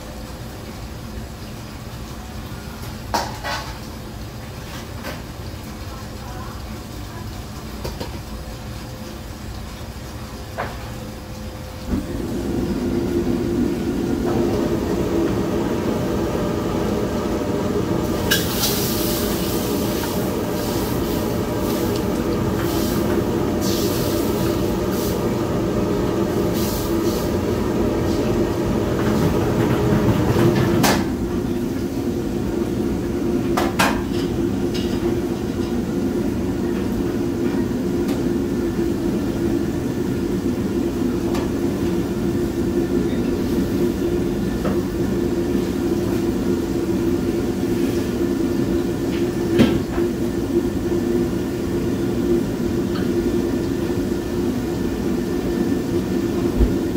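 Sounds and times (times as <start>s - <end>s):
kitchen exhaust hood: 0.0s - 56.9s
gas burner roaring: 10.6s - 56.9s.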